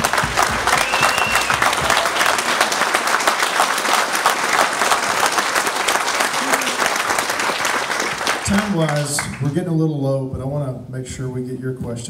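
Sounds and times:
close hands clapping: 0.0 - 9.6
audience applauding: 0.0 - 9.8.

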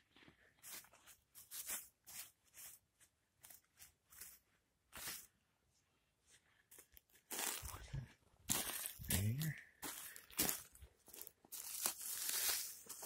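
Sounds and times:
rustling of dry pine needles: 0.6 - 2.8, 6.7 - 7.9, 8.5 - 13.0.

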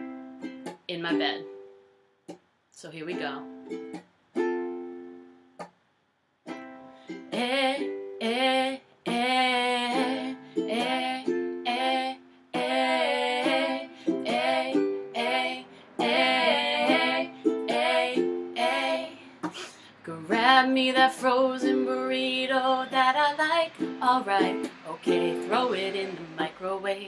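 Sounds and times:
ukulele strumming chords: 0.0 - 5.8, 6.4 - 27.0
woman singing: 7.3 - 19.3, 20.0 - 27.0.

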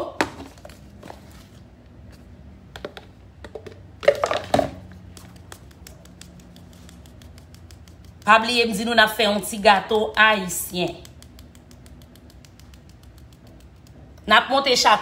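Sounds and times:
sieve tapping and rattling: 2.8 - 4.9.

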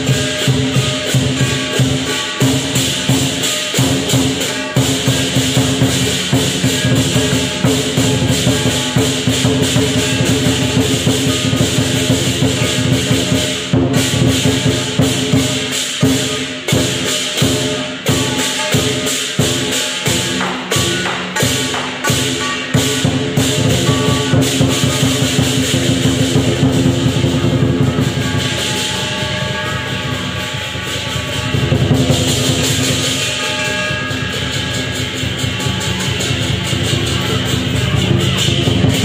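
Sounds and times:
cymbals clashing: 0.0 - 39.0
drum beat: 0.0 - 39.0
gong: 0.0 - 39.0.

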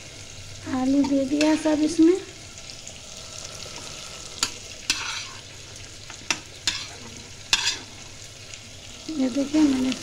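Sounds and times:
potatoes sizzling in oil: 0.0 - 10.0
spatula scraping pan: 3.7 - 5.6, 6.3 - 8.1.

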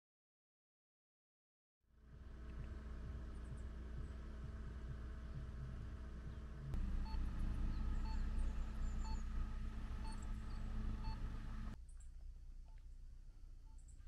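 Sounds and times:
low mechanical hum: 1.9 - 14.0.

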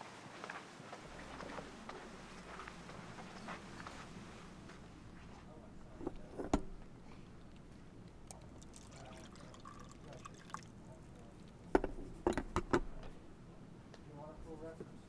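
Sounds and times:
coffee pouring into paper cup: 7.4 - 12.8
carafe knocking on warming plate: 11.7 - 13.0.

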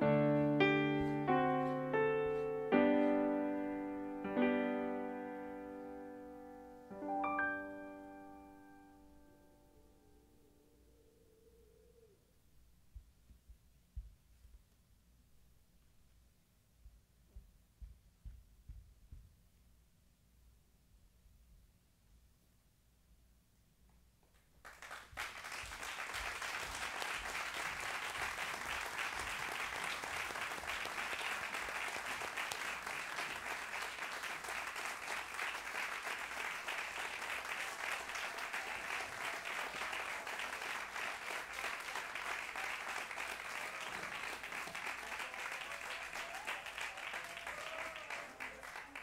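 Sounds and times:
audience applauding: 24.6 - 49.0.

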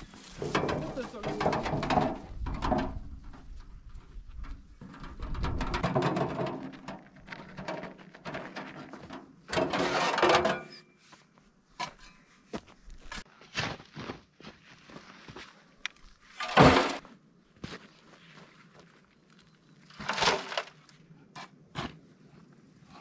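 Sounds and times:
metal wheelbarrow rattling: 0.1 - 10.8, 16.4 - 17.0, 19.9 - 20.8.

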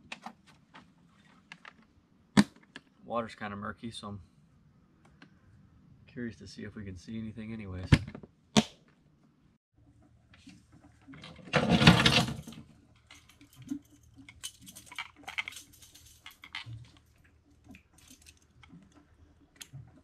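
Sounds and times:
weight belt clicks and clinks: 12.1 - 17.1, 17.7 - 19.0.

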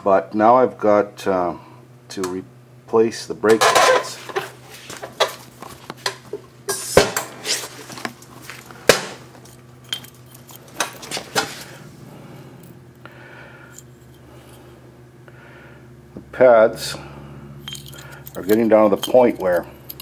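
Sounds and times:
faint steady hum: 0.0 - 20.0
metal tools clinking: 9.4 - 11.7, 17.6 - 20.0.

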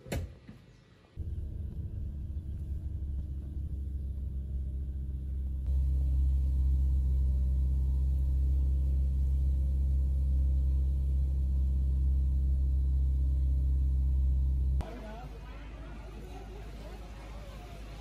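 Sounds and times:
car engine and road noise: 1.2 - 18.0.

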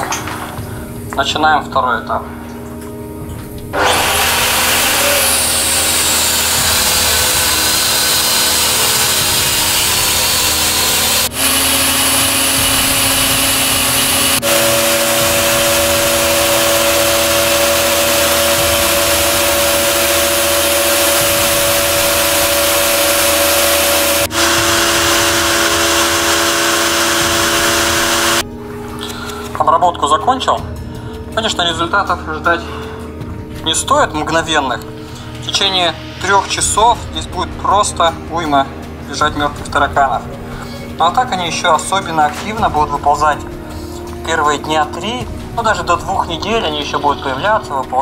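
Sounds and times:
electric fogging machine running: 3.7 - 28.4.

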